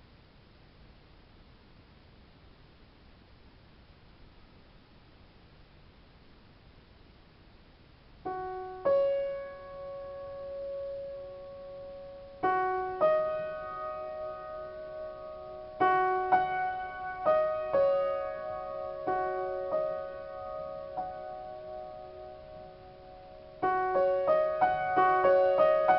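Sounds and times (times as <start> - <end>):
piano notes and soft chords: 8.2 - 25.9.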